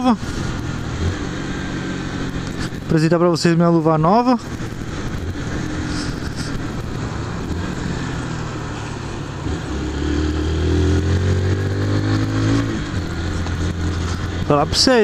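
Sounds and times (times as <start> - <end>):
motorcycle engine running: 0.0 - 15.0
wind and wet road hiss: 4.5 - 9.4.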